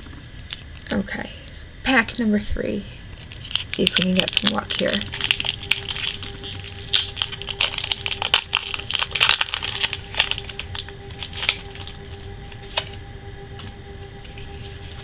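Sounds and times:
foil wrapper tearing and crinkling: 3.2 - 11.9.

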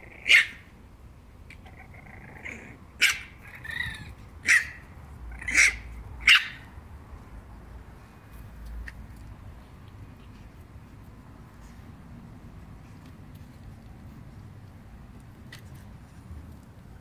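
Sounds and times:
puppies yipping: 0.2 - 0.6, 2.4 - 6.7.

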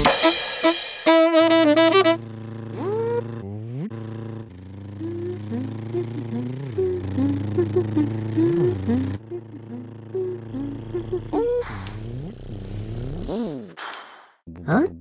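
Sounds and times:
saxophone-like musical phrase: 0.0 - 11.8
rising pitch glides: 1.1 - 13.2
low engine hum: 1.1 - 13.3.

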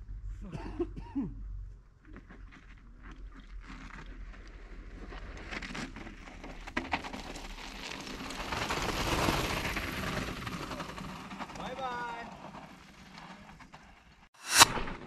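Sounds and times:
bike tyres crunching over gravel: 2.2 - 14.1.

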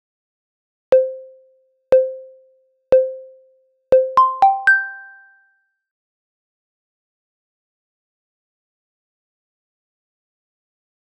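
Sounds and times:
timer pinging tones: 1.0 - 5.4
three-note chime: 4.0 - 5.4.

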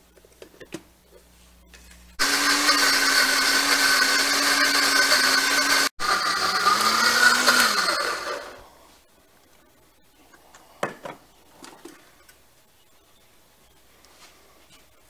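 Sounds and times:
blender motor whining: 2.2 - 8.7.

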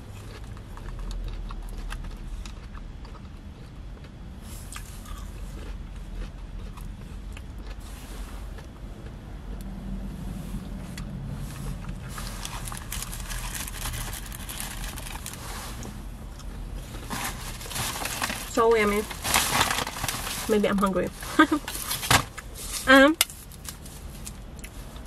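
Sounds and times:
person chewing food: 0.0 - 18.4
food rustling: 11.4 - 25.0.

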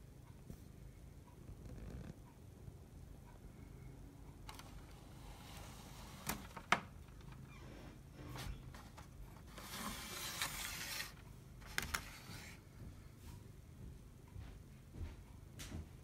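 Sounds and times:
scraping rustle on wooden table: 7.8 - 11.2.

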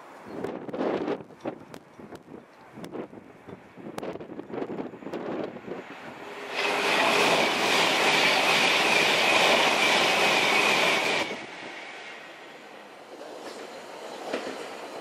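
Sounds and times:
electric train passing: 4.3 - 15.0
high steady whine: 4.8 - 12.2.

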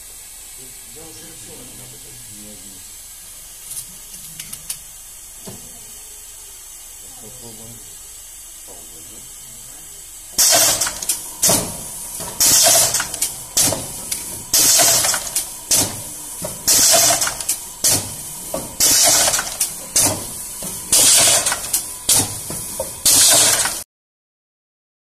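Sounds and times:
compressed air hissing: 0.0 - 23.8
sharp mechanical clack: 10.4 - 16.0, 16.6 - 23.8.

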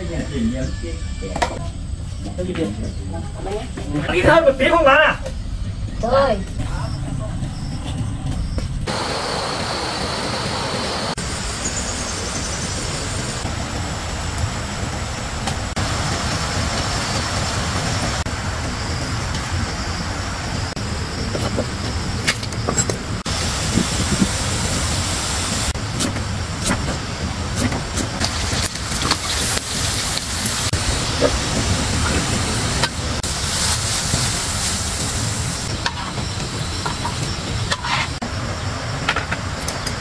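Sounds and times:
low rumble: 1.6 - 27.5
meat sizzling in a wok: 28.2 - 38.0.

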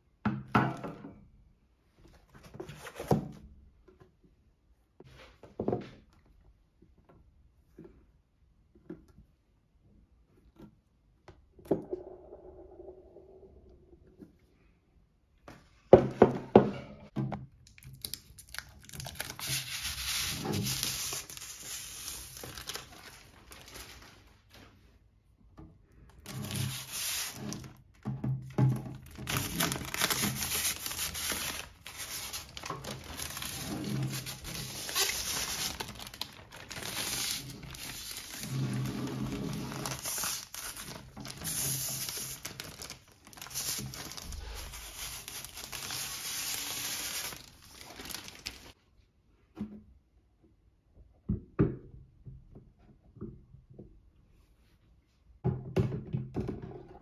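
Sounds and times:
plastic film peeling and crinkling: 17.6 - 24.6, 26.2 - 27.8, 28.8 - 48.8.

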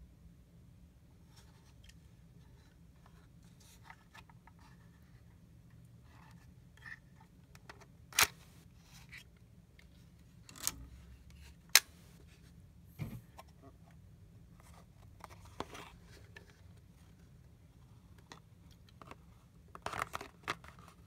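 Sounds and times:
plastic clicks and scraping: 18.2 - 21.0.

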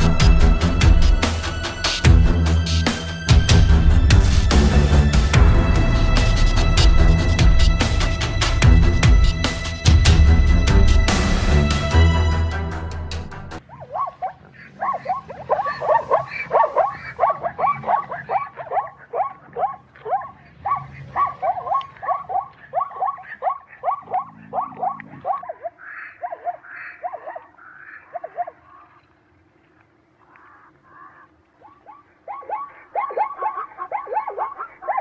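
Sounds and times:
animal barking calls: 13.6 - 29.1, 30.2 - 35.0.

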